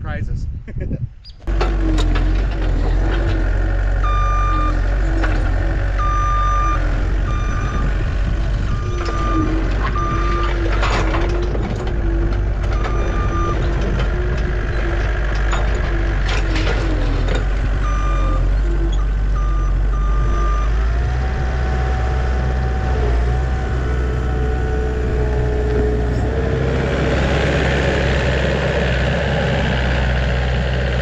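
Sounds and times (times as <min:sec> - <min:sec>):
diesel engine running: 0:01.4 - 0:31.0
back-up alarm beeps: 0:04.0 - 0:04.8, 0:06.0 - 0:07.9, 0:08.7 - 0:10.6, 0:12.8 - 0:13.6.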